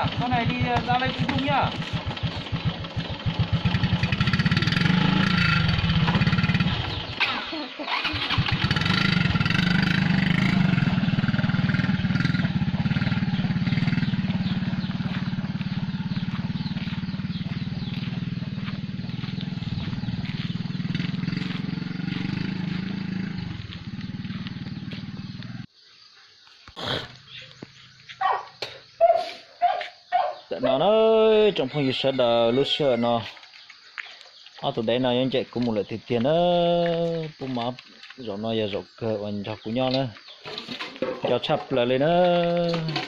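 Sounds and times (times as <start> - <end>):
motorbike engine pulling away: 0.0 - 25.7, 39.8 - 43.0.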